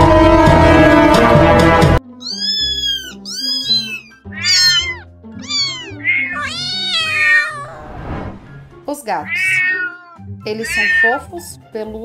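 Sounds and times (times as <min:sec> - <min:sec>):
loud music: 0:00.0 - 0:02.0
soft background music: 0:00.0 - 0:12.0
kitten meowing: 0:02.2 - 0:07.8, 0:09.2 - 0:11.3.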